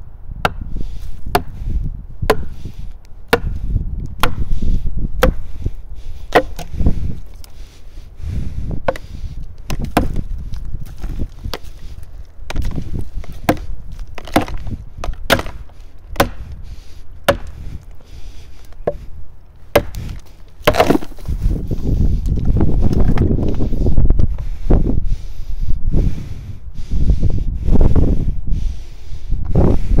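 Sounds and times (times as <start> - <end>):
wedge knocked into log: 9.7 - 10.2, 20.6 - 21.1.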